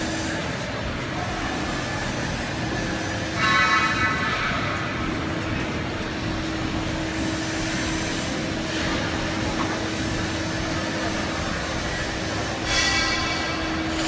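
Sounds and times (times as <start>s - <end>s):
constant low hum: 0.0s - 14.0s
rushing background noise: 0.0s - 14.0s.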